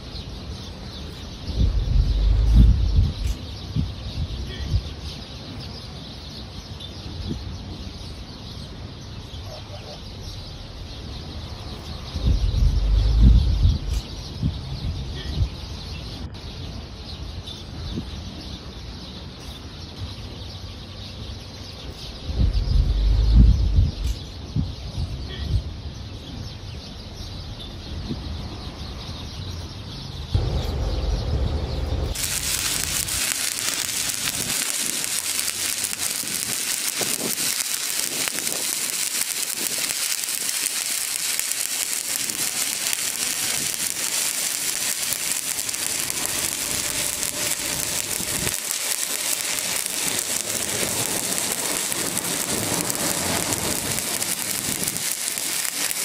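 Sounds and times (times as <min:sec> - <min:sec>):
welding arc crackling: 0:00.0 - 0:05.7, 0:10.8 - 0:14.7, 0:21.9 - 0:24.3, 0:30.4 - 0:56.0.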